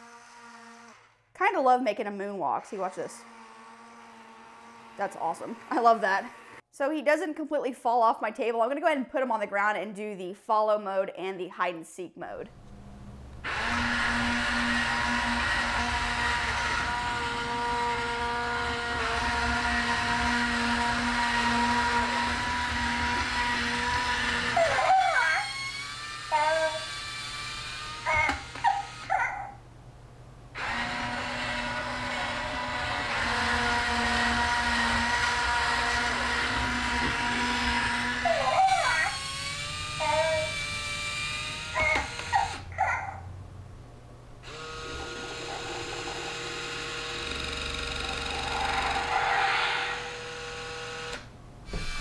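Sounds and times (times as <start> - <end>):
toy baby coos: 24.5 - 27.1, 28.0 - 29.6, 38.2 - 40.7, 41.6 - 43.2.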